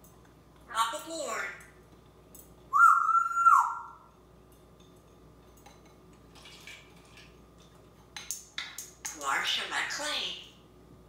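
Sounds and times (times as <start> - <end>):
parrot whistle: 2.7 - 4.0
dishes clinking: 4.1 - 9.0.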